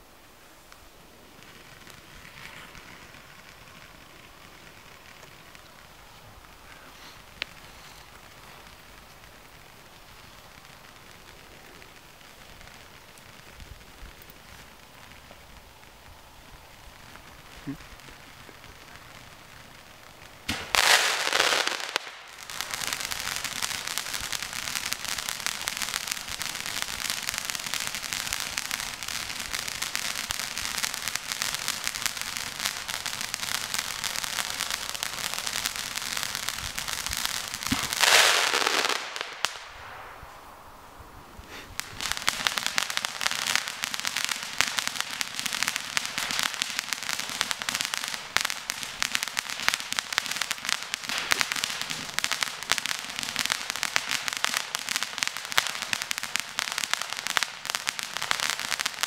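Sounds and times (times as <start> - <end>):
firework crackling: 0.0 - 59.0
firework blast: 1.2 - 59.0.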